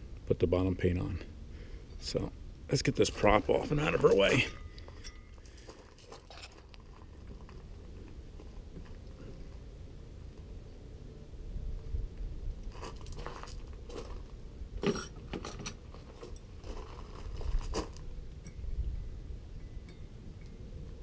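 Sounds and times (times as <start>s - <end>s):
low steady rumble: 0.0s - 21.0s
footsteps on gravel: 3.0s - 8.2s, 12.7s - 14.4s, 15.9s - 18.1s.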